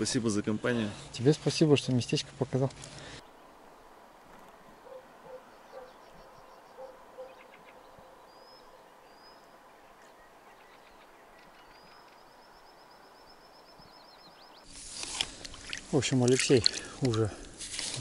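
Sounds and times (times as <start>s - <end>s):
birds calling: 2.9s - 14.8s.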